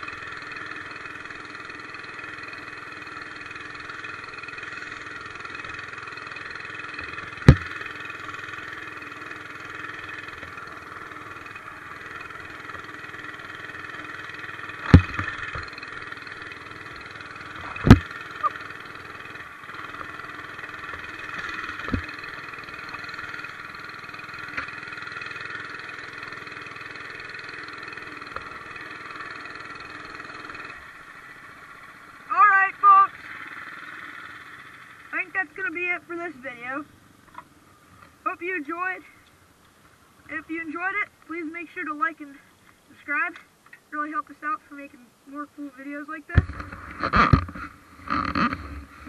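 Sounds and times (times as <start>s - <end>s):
mini bike engine running: 0.0s - 39.4s, 44.4s - 49.0s
sharp knocks: 7.4s - 7.8s, 14.8s - 15.7s, 17.7s - 18.2s, 21.7s - 22.1s.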